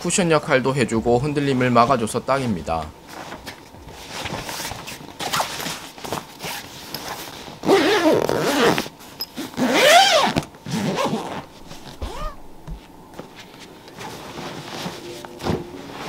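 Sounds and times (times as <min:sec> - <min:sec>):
fabric rustling: 0:03.0 - 0:16.0
zipper being pulled: 0:05.2 - 0:12.6.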